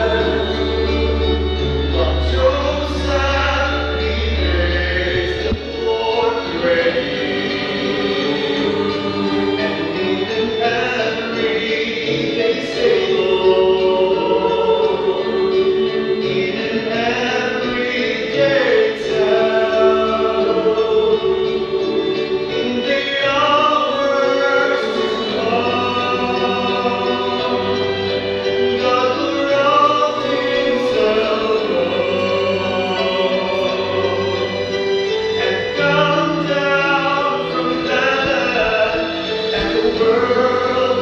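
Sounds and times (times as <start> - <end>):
mixed choir singing: 0.0 - 41.0.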